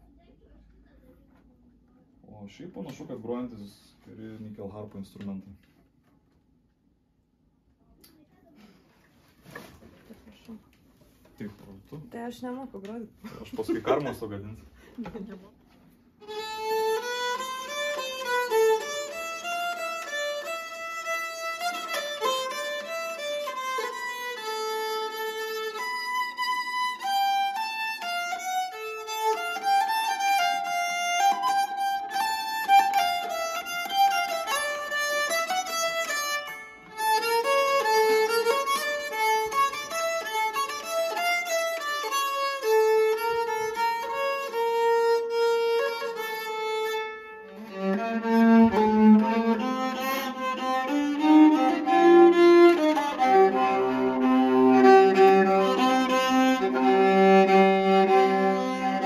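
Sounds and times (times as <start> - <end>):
keyed fiddle playing tune: 16.2 - 59.0.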